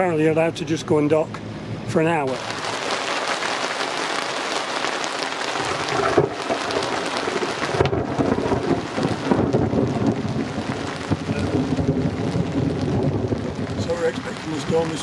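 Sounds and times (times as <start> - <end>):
rain on canvas cover: 2.2 - 15.0
low thunder rumbling: 5.1 - 15.0.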